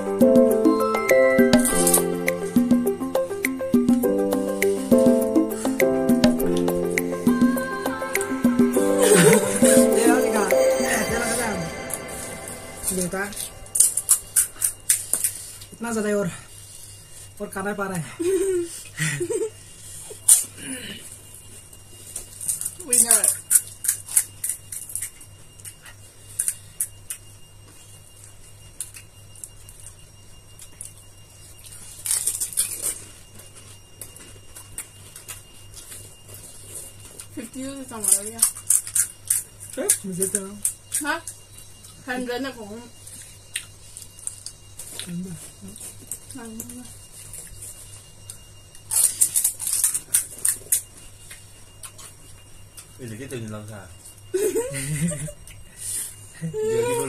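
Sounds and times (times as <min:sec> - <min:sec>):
steady low hum: 0:00.0 - 0:15.8.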